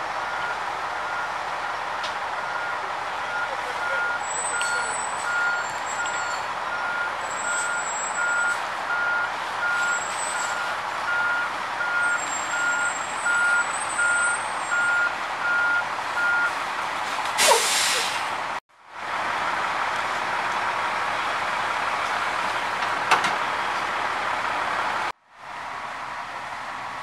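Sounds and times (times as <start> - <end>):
fire engine running: 0.0 - 27.0
back-up alarm beeping: 2.4 - 16.5
loud burst of hiss: 17.4 - 18.3.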